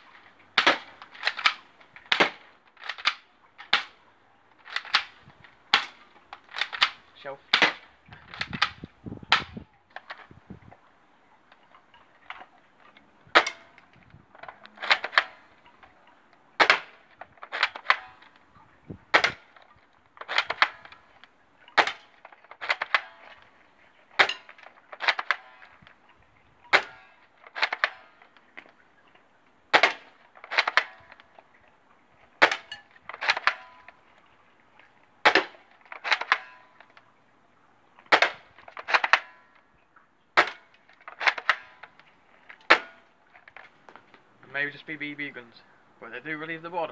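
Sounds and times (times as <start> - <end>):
bb gun shots cracking: 0.0 - 4.0, 4.6 - 10.2, 13.3 - 15.9, 16.6 - 19.6, 20.2 - 23.5, 24.1 - 25.9, 26.7 - 28.3, 29.7 - 31.4, 32.4 - 33.9, 35.2 - 36.9, 38.0 - 39.3, 40.4 - 43.6.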